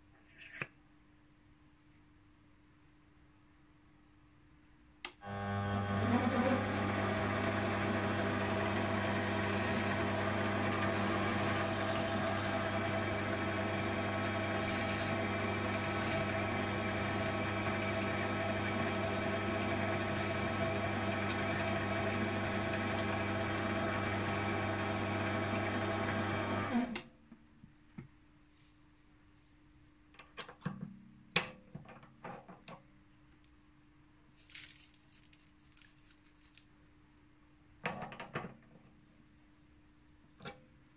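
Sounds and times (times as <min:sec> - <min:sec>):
lathe motor whine: 0:05.3 - 0:27.0.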